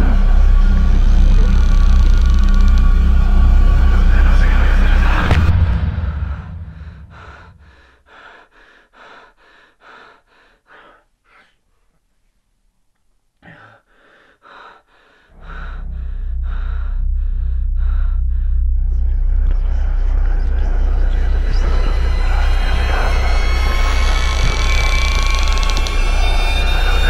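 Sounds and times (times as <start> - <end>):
deep low drone: 0.0 - 8.0, 15.3 - 27.0
woman breathing hard: 6.5 - 11.9, 13.4 - 18.7.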